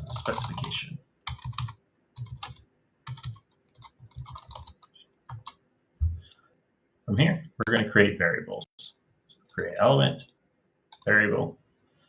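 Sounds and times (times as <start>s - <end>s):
keyboard typing clicks: 1.3s - 5.6s.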